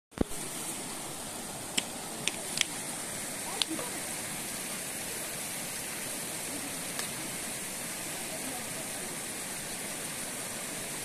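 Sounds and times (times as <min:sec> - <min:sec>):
river rushing over rocks: 0:00.2 - 0:11.0.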